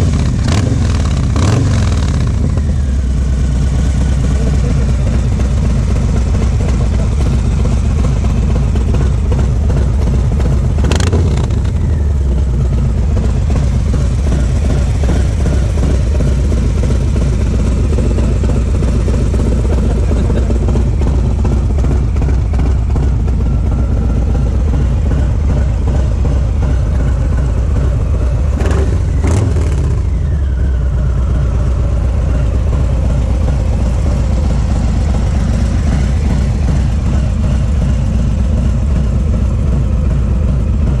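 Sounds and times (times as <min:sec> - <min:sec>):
engine revving: 0:00.0 - 0:05.3, 0:10.8 - 0:12.5, 0:28.6 - 0:30.8
motorcycle engine idling: 0:00.0 - 0:41.0.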